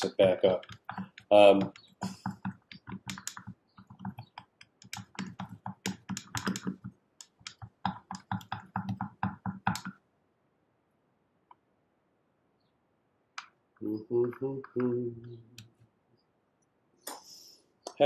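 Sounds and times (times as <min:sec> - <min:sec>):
stick stirring paint in plastic jar: 0:00.0 - 0:10.0.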